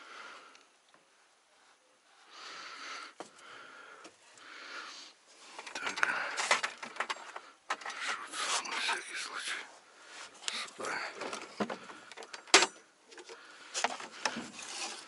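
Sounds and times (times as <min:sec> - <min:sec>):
person breathing hard: 0:00.0 - 0:00.7, 0:02.2 - 0:12.5, 0:13.2 - 0:14.6
gear handling clicks and knocks: 0:05.5 - 0:09.0, 0:10.5 - 0:14.6.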